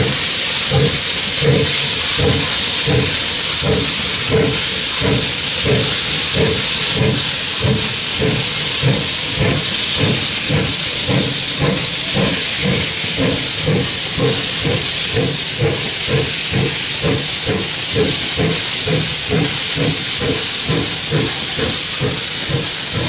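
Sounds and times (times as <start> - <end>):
steam hissing: 0.0 - 23.0
steam locomotive chuffing: 0.0 - 23.0.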